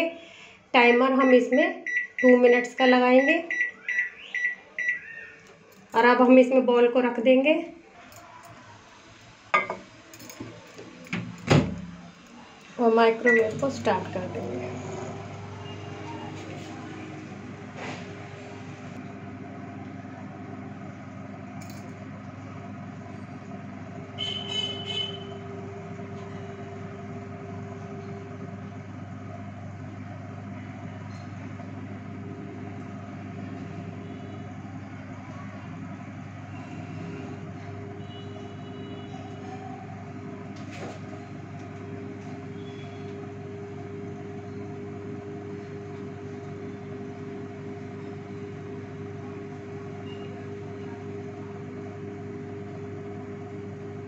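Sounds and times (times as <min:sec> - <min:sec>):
microwave oven humming: 0:00.0 - 0:06.9, 0:07.6 - 0:54.0.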